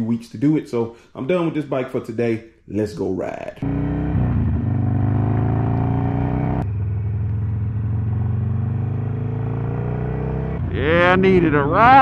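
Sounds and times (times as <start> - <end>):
motorcycle engine accelerating: 3.6 - 12.0.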